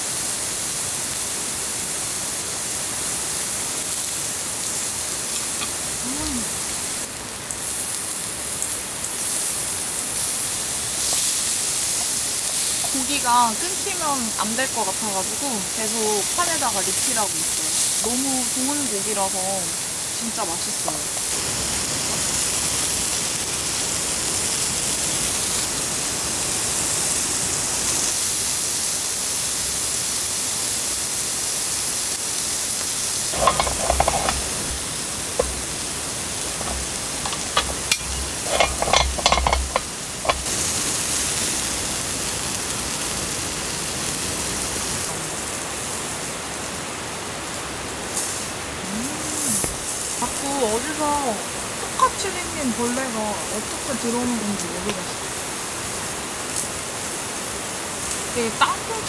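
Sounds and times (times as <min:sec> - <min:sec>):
meat sizzling on grill plate: 0:00.0 - 0:59.0
clinking and knocking on plate: 0:33.4 - 0:34.8, 0:35.4 - 0:35.7, 0:36.5 - 0:40.5.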